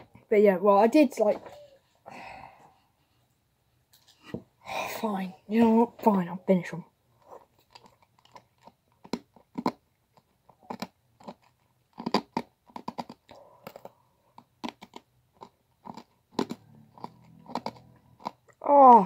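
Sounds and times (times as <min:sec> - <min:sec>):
crunching hard candy: 0:07.3 - 0:19.0.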